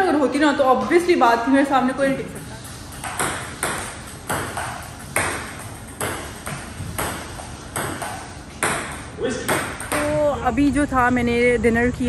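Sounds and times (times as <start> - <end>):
table tennis ball clicking: 2.9 - 10.2.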